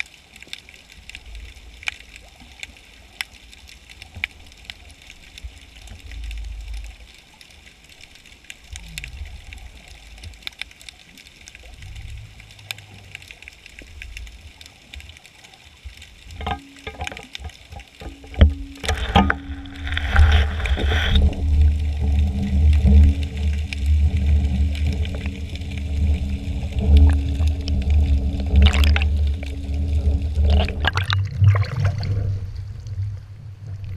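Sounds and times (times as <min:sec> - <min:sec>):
faint clicks: 0:00.0 - 0:30.8
underwater rumble of moving water: 0:00.0 - 0:33.9
rushing noise: 0:18.8 - 0:31.0.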